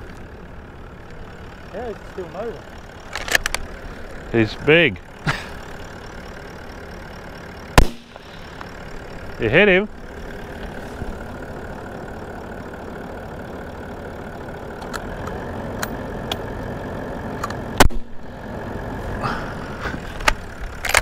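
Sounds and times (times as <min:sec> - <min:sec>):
vehicle engine idling: 0:00.0 - 0:21.0
loud rifle shot: 0:07.8 - 0:08.2, 0:17.8 - 0:18.2.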